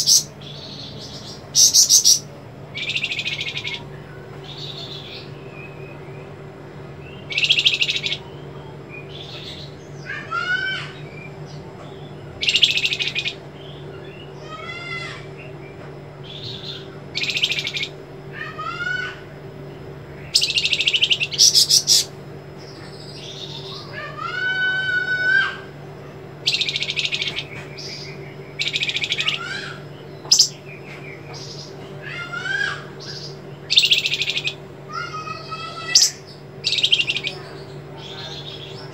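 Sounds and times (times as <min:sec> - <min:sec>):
steady low hum: 0:00.0 - 0:38.9
songbird trills and whistles: 0:01.6 - 0:02.2.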